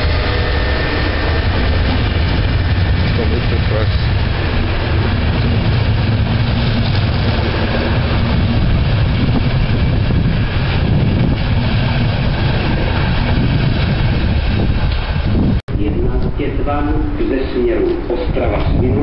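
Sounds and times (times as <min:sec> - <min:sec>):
train wheels on rails: 0:00.0 - 0:18.9.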